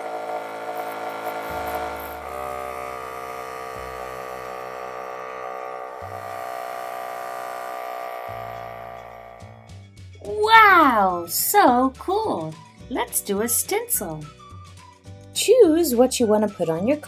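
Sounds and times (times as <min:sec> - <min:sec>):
airbrush buzzing: 0:00.0 - 0:10.0.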